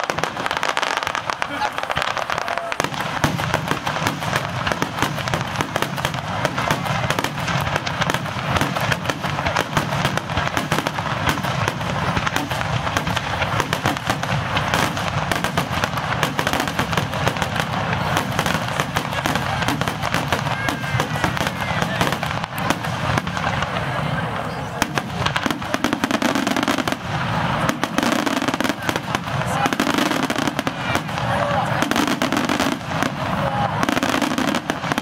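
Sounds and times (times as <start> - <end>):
firework shells bursting: 0.0 - 23.8.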